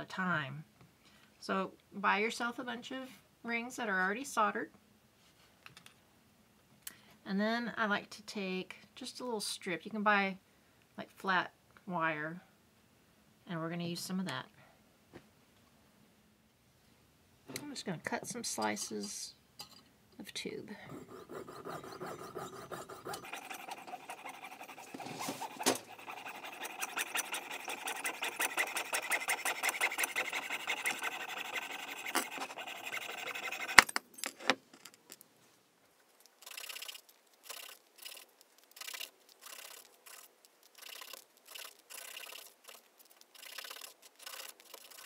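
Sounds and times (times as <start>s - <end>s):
saw cutting metal tubing: 20.9s - 33.9s, 43.4s - 45.0s
metal rubbed on sandpaper: 21.0s - 33.9s, 36.5s - 45.0s.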